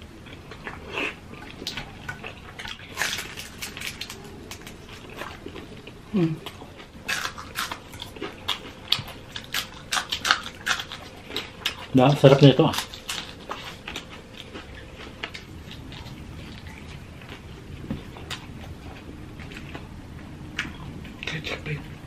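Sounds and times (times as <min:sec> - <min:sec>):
chewing and lip-smacking: 0:00.2 - 0:21.9
biting into crisp food: 0:00.6 - 0:05.9, 0:06.5 - 0:17.4.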